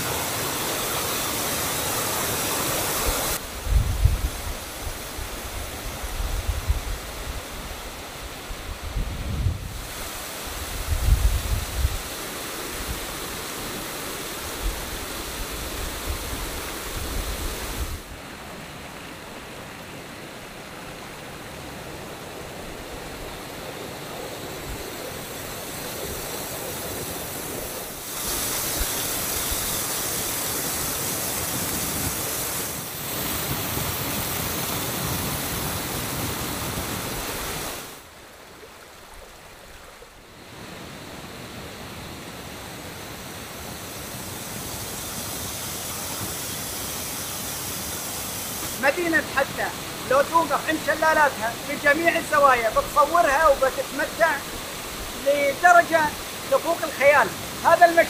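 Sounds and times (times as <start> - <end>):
water rushing over waterfalls: 0.0 - 3.6, 9.6 - 58.0
wind buffeting microphone: 3.1 - 7.8, 8.5 - 12.1.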